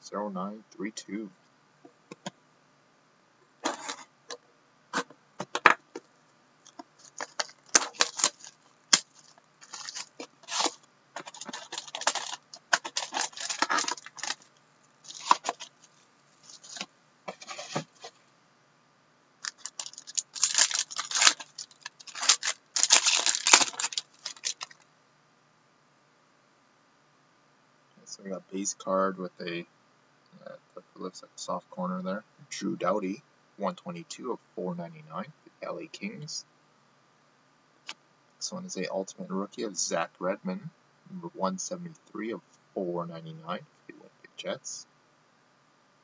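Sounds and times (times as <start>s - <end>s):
plastic shrink wrap crinkling: 3.6s - 4.0s, 6.7s - 18.2s, 19.4s - 24.8s.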